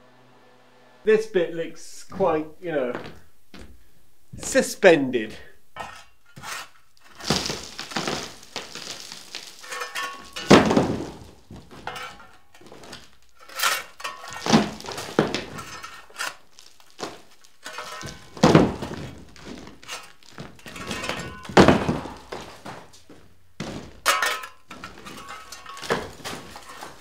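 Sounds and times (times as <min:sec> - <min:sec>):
debris falling and clattering: 0:05.8 - 0:27.0.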